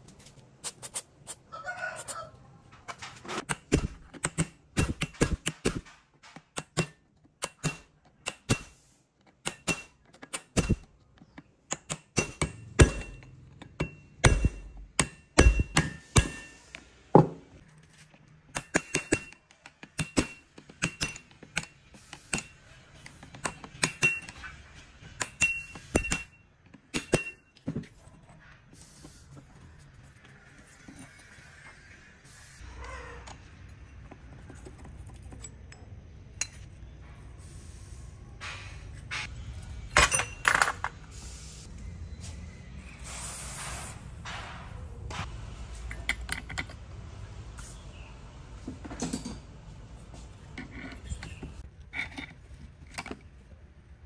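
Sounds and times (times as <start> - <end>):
hammer striking steel punch: 6.6 - 8.8, 9.4 - 10.9, 11.7 - 17.4, 25.2 - 27.5.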